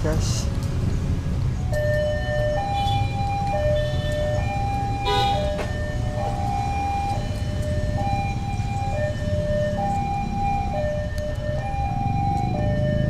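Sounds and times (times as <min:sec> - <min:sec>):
two-tone siren: 0:01.7 - 0:13.0.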